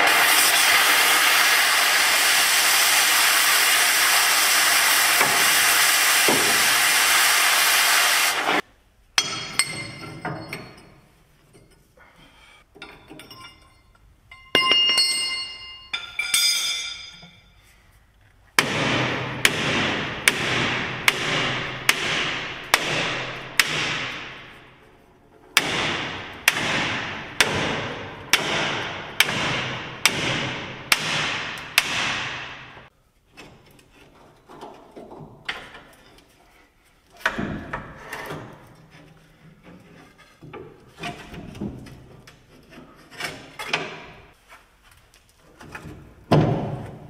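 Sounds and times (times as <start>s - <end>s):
hammer striking steel: 9.2s - 10.8s, 12.8s - 17.4s, 18.6s - 24.7s, 25.6s - 32.9s.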